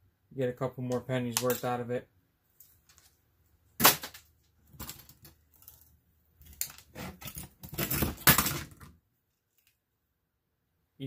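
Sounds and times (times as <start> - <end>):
circuit boards clattering on workbench: 7.2 - 8.9.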